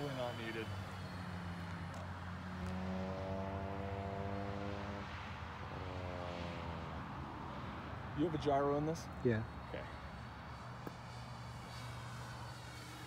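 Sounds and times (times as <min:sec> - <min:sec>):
model plane propellers droning: 0:00.0 - 0:13.0.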